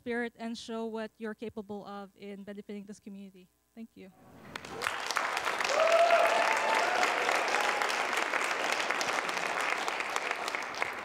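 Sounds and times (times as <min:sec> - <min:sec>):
audience applauding: 0:04.4 - 0:11.0
voices cheering: 0:04.6 - 0:11.0.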